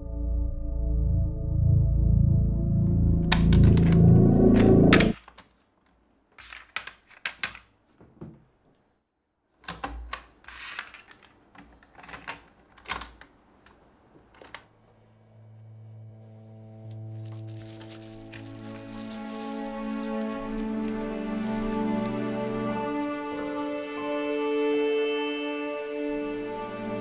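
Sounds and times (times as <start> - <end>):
soft sustained music: 0.0 - 5.2, 15.1 - 27.0.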